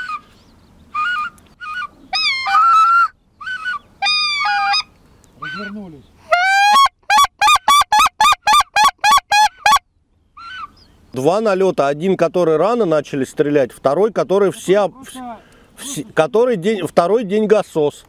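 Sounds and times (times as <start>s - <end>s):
goose call honks and clucks: 1.0s - 9.8s.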